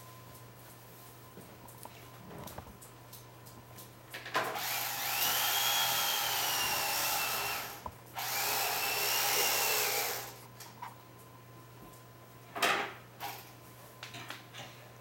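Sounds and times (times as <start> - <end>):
electric carving knife whining: 4.6 - 10.4.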